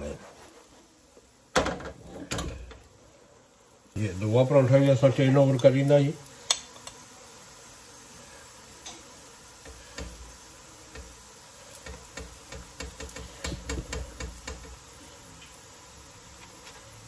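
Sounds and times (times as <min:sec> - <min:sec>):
flatbread sizzling on hot griddle: 0:00.0 - 0:17.0.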